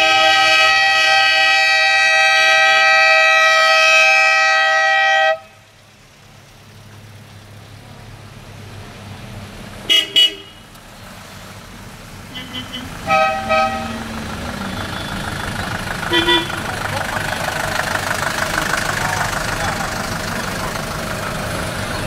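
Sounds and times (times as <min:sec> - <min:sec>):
car horn: 0:00.0 - 0:05.6, 0:09.9 - 0:10.7, 0:12.3 - 0:17.5
car engines passing: 0:00.0 - 0:22.0.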